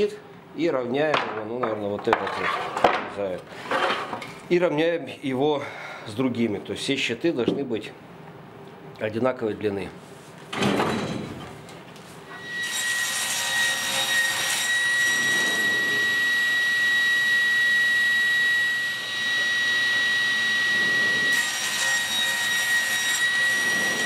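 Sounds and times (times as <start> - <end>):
table saw cutting wood: 12.3 - 24.0.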